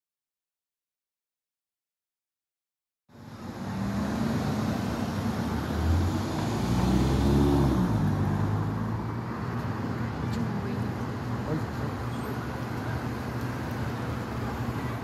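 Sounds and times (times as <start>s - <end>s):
city street traffic: 3.1s - 15.0s
car driving past: 3.5s - 9.2s.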